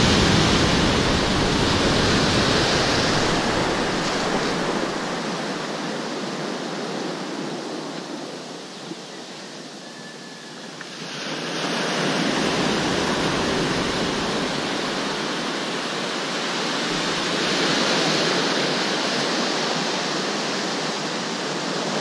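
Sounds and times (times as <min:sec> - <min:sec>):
sea surf washing in: 0:00.0 - 0:07.6, 0:10.9 - 0:22.0.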